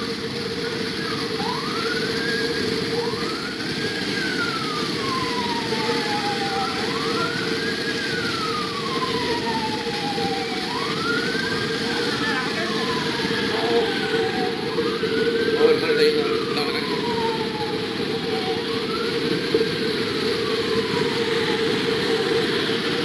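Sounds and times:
emergency siren wailing: 0.0s - 23.0s
floodwater rushing roar: 0.0s - 23.0s.

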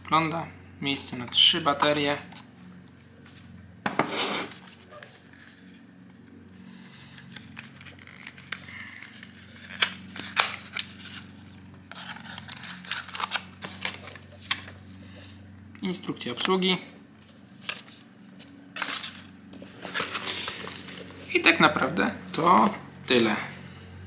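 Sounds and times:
paper rustling: 4.4s - 5.9s, 6.9s - 15.4s, 16.3s - 21.5s
plastic packaging rustle: 7.0s - 15.3s, 17.2s - 21.4s.

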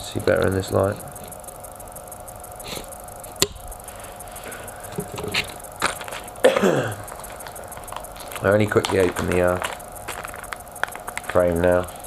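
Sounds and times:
plastic bag crinkling: 5.0s - 12.0s.

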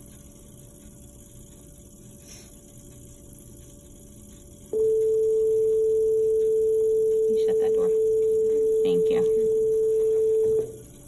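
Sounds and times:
loud steady pure tone: 0.0s - 11.0s
potter's wheel humming: 0.0s - 11.0s.

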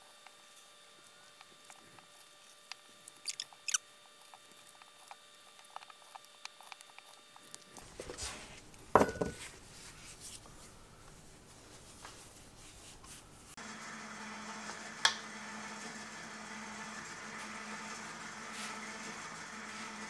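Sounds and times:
low steady hum: 0.0s - 13.6s
hands rubbing dough: 4.8s - 8.7s, 9.4s - 13.6s.

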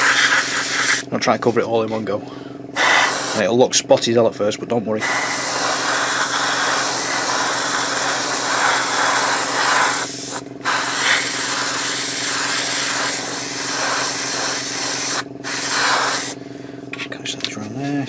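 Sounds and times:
airbrush spraying: 0.0s - 1.1s, 2.8s - 3.5s, 5.0s - 16.4s.

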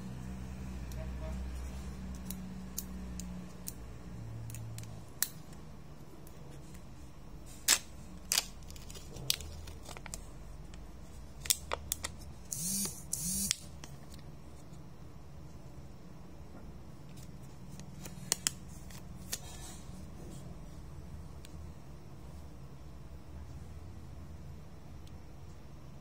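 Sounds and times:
foil and plastic crinkling: 8.3s - 10.3s.

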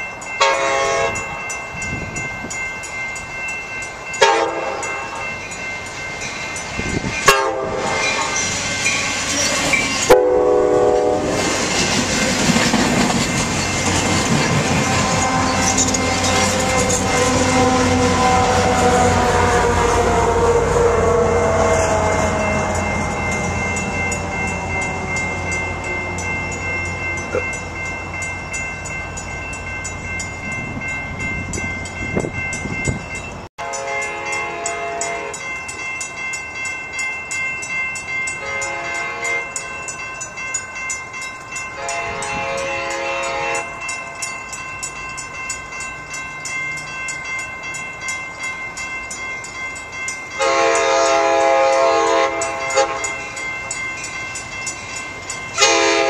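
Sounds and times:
train air horn blasts: 0.4s - 1.2s, 4.2s - 4.8s, 7.3s - 8.0s, 10.1s - 11.5s, 14.7s - 22.8s, 33.6s - 35.4s, 41.8s - 43.7s, 50.4s - 53.2s, 55.6s - 56.0s.

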